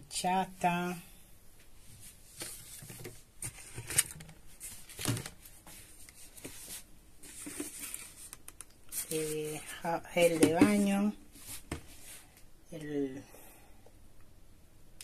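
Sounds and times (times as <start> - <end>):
rustling of cartons and bottles: 1.8 - 12.4.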